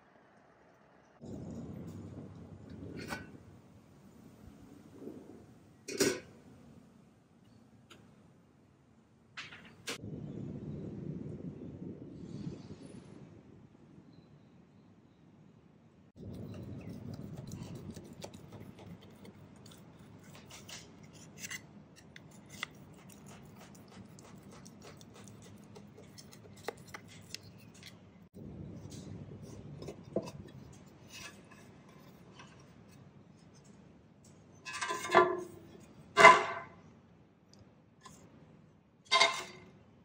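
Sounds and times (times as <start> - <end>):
knife scraping metal pan: 16.5 - 27.7, 34.6 - 36.7, 39.1 - 39.6
metal pan clattering: 39.1 - 39.7.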